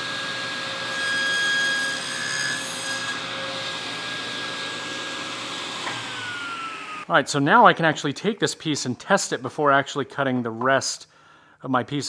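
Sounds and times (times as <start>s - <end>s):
saw blade cutting plywood: 0.0s - 7.1s
table saw whining: 0.0s - 7.1s.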